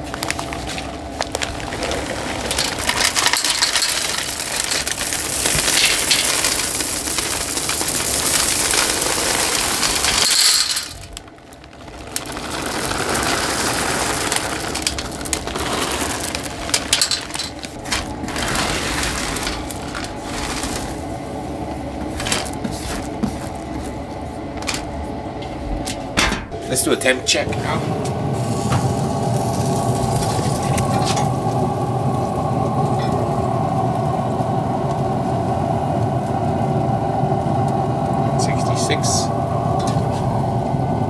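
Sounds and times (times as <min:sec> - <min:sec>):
wood pellets pouring and rattling: 0:00.0 - 0:23.9, 0:28.3 - 0:34.1.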